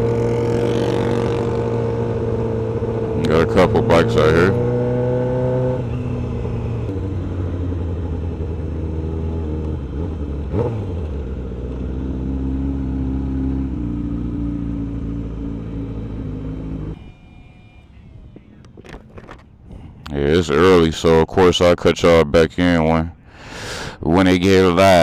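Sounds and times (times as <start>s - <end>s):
motorcycle engine at low revs: 0.0s - 17.0s.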